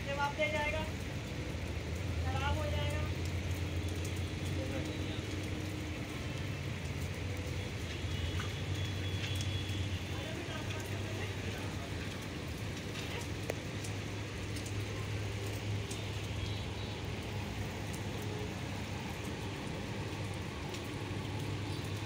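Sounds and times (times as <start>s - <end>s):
rain on a hard rooftop: 0.0s - 22.0s
drops ticking: 0.7s - 18.3s.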